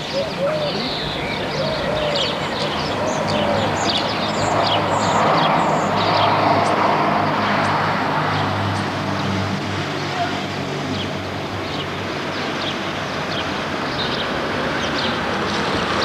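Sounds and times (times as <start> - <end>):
small birds chirping: 0.0 - 6.8
passing motor vehicle: 0.0 - 16.0.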